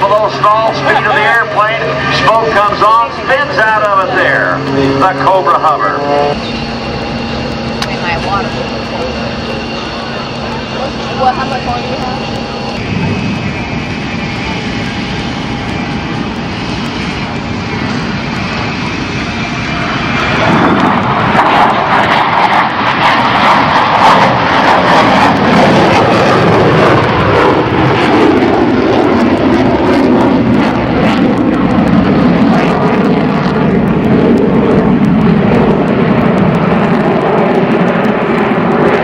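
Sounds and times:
fighter jet flying overhead: 0.0 - 39.0.

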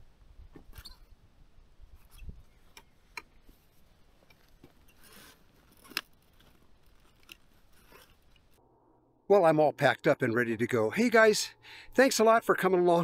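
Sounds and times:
gear clicks and rustling: 2.0 - 8.6.

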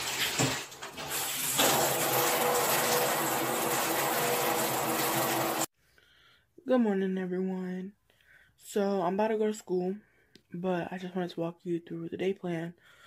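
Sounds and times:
shower water spraying: 0.0 - 5.7.

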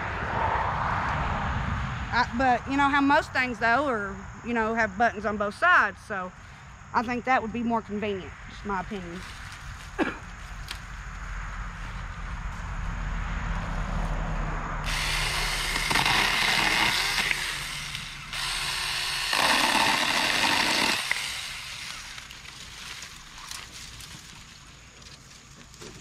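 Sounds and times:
chainsaw cutting branches: 14.8 - 23.9.

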